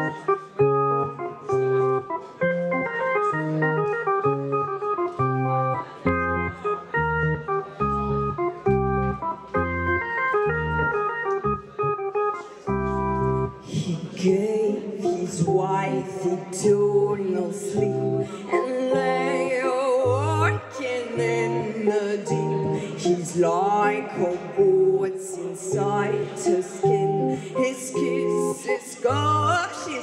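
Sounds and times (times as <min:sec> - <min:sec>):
organ-like keyboard chords: 0:00.0 - 0:30.0
deep bass notes: 0:00.6 - 0:13.6.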